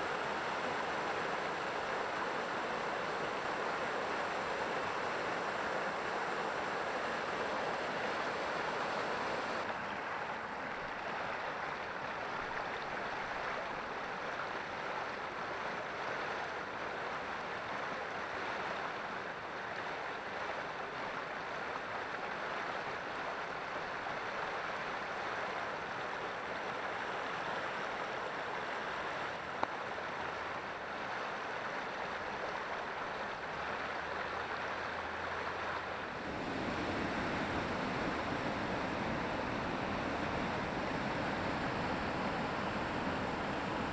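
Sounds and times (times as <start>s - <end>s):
deeper waterfall rush: 0.0s - 9.8s, 32.2s - 43.9s
water rushing over rocks: 0.0s - 10.5s, 26.7s - 43.9s.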